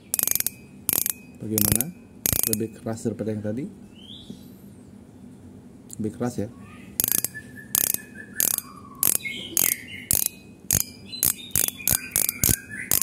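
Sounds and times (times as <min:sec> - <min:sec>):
fishing reel clicker clicking: 0:00.1 - 0:02.7, 0:07.0 - 0:13.0.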